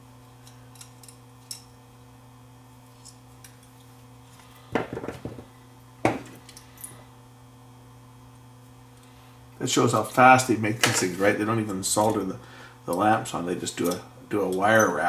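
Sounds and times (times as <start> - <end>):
steady electrical hum: 0.0 - 15.0
metal tools clinking: 13.7 - 15.0.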